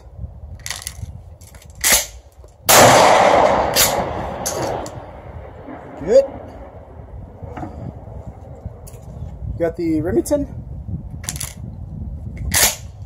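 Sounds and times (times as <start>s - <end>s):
shotgun blast: 2.7s - 6.8s.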